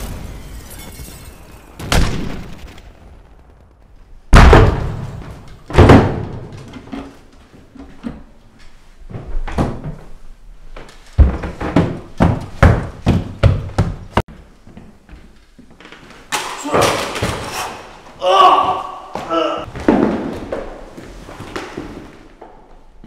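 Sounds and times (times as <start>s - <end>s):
loud sharp bangs: 0.0s - 6.2s.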